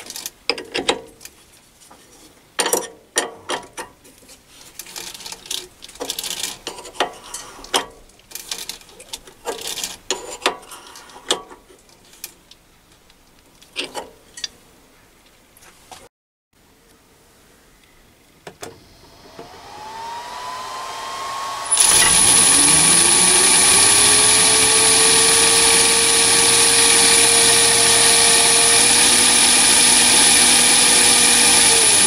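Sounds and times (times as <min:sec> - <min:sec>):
steel scraping on steel: 0:06.2 - 0:07.9, 0:09.5 - 0:11.4.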